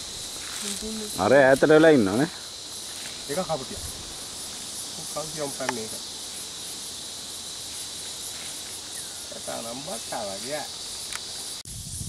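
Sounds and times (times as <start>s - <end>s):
insects chorus: 0.0s - 12.0s
people talking: 0.6s - 2.3s, 5.0s - 6.0s, 9.3s - 10.7s.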